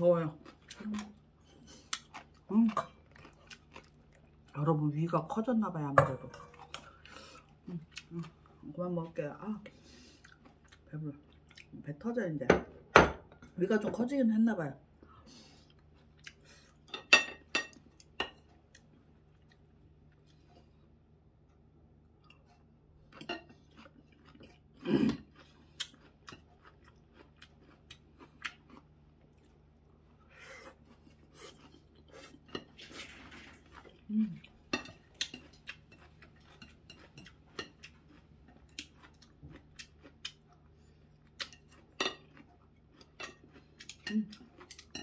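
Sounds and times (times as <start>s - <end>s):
chewing and mouth clicks: 0.4s - 4.5s, 10.2s - 11.8s, 22.2s - 30.1s, 30.7s - 45.0s.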